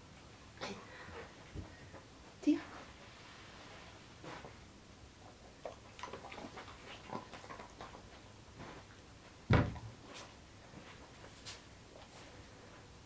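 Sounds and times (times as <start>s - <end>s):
heavy thump: 9.5s - 9.9s
dog paws scuffing on rug: 10.0s - 12.4s.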